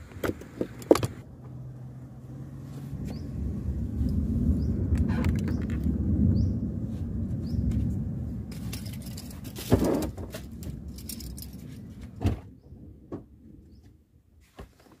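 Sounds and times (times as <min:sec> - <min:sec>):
low rumble: 0:01.2 - 0:13.8.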